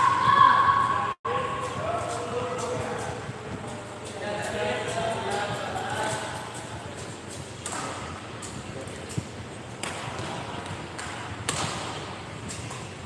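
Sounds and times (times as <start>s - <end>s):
hall background murmur: 0.8s - 7.5s
rackets striking shuttlecock: 4.0s - 13.0s.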